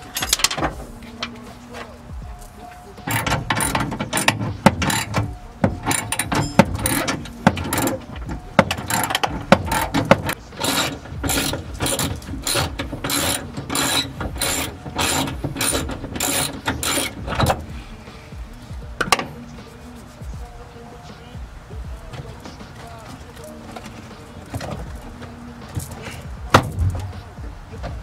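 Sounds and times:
tools knocking: 0:02.4 - 0:17.8, 0:19.0 - 0:19.4, 0:22.1 - 0:28.0
ratchet wrench clicking: 0:03.0 - 0:17.6.

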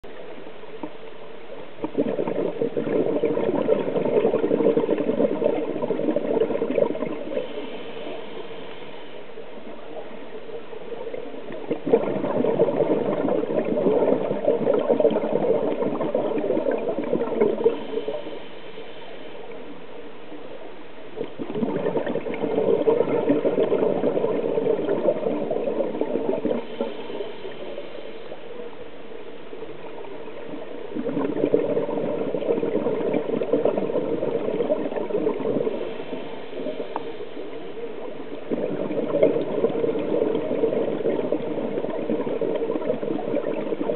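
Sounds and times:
bubbles rushing from regulator: 0:01.8 - 0:07.6, 0:11.3 - 0:18.2, 0:21.2 - 0:26.9, 0:29.8 - 0:37.0, 0:38.0 - 0:43.9.

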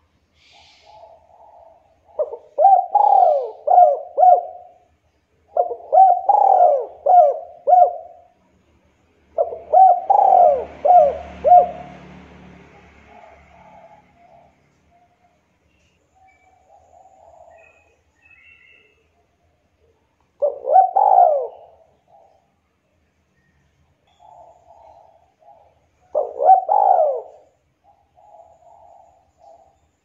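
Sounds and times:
dove cooing: 0:00.4 - 0:08.4, 0:09.3 - 0:15.4, 0:16.2 - 0:22.6, 0:24.1 - 0:29.8
faint rushing noise: 0:10.5 - 0:14.9.

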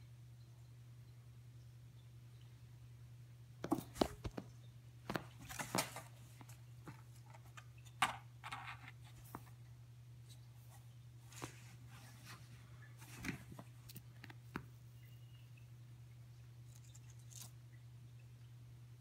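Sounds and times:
cardboard rustling: 0:03.6 - 0:04.5, 0:05.1 - 0:07.6, 0:11.3 - 0:13.9.

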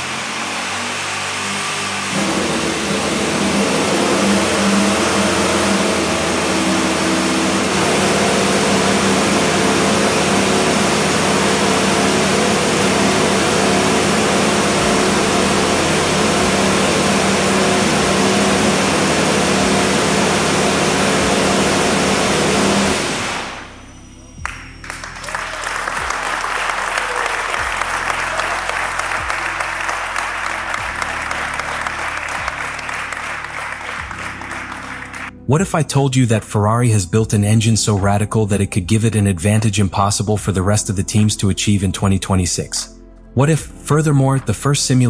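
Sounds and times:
racing car engine running: 0:00.0 - 0:35.3.

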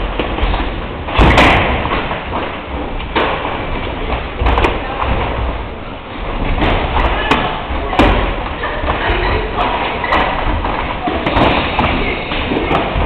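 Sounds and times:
punches and kicks thudding: 0:00.2 - 0:02.3.

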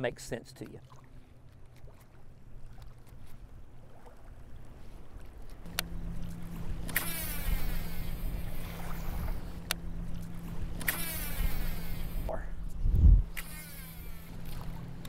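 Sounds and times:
steady low hum: 0:00.0 - 0:15.0
reel spool whirring: 0:02.7 - 0:15.0
fishing rod swish: 0:06.8 - 0:09.7, 0:10.5 - 0:12.3, 0:13.0 - 0:14.8.

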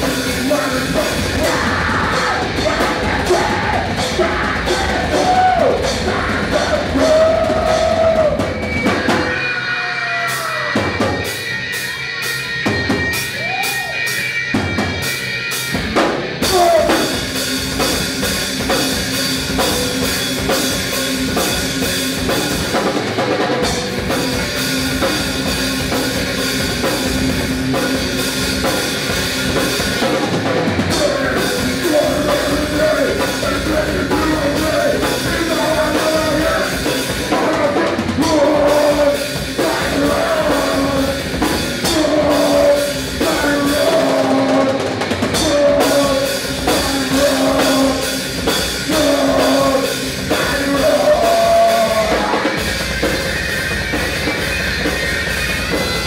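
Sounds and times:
bass guitar: 0:00.0 - 0:56.0
drum kit: 0:00.0 - 0:56.0
electric guitars: 0:00.0 - 0:56.0
man singing into microphone: 0:30.9 - 0:41.2, 0:41.8 - 0:48.1, 0:48.8 - 0:52.5.

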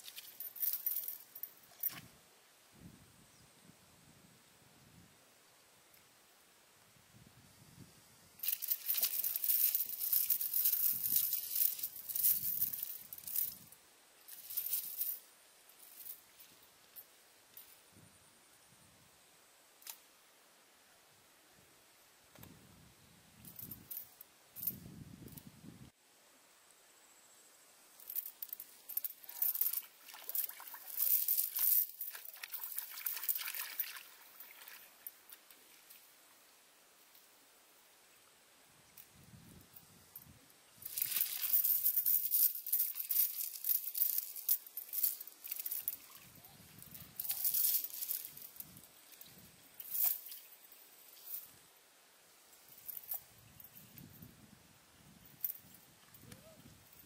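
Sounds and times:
chain rattling: 0:00.0 - 0:02.0, 0:08.4 - 0:13.7, 0:14.3 - 0:15.2, 0:28.0 - 0:35.2, 0:40.8 - 0:51.5, 0:52.6 - 0:54.1
water splashing in a mud hole: 0:29.8 - 0:31.0, 0:32.1 - 0:35.0.

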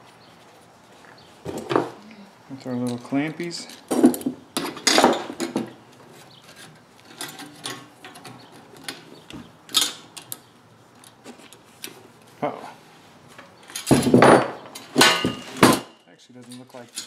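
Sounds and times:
metal clinks and scrapes: 0:13.7 - 0:17.0.

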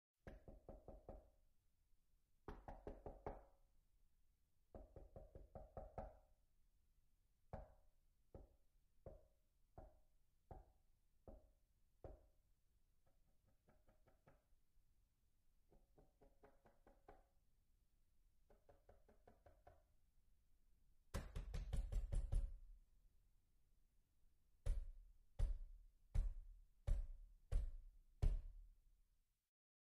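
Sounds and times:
knocking on a door: 0:21.1 - 0:22.6, 0:24.6 - 0:28.7.

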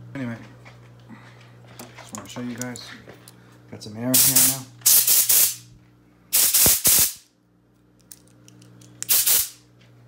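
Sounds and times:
compressed air blasts: 0:04.2 - 0:05.6, 0:06.3 - 0:07.2, 0:09.1 - 0:09.6.

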